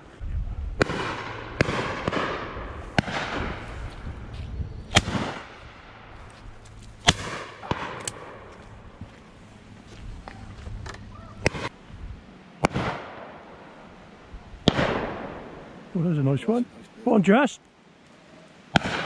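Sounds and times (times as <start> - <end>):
shotgun shots: 0.8 - 3.6, 4.9 - 5.9, 7.0 - 8.5, 12.6 - 13.4, 14.7 - 15.6, 18.8 - 19.0.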